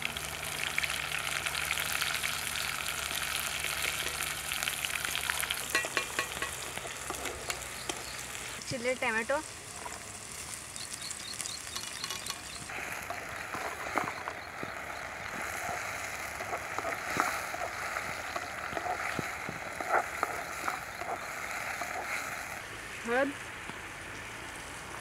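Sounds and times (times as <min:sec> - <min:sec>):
vegetables sizzling in a pan: 0:00.0 - 0:25.0
wooden spatula scraping a pan: 0:11.8 - 0:22.6.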